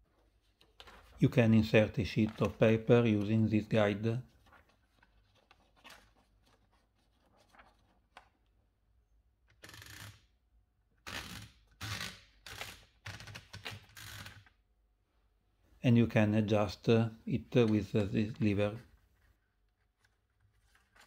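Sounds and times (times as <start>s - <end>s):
paper rustling: 0.2s - 8.4s, 17.6s - 21.0s.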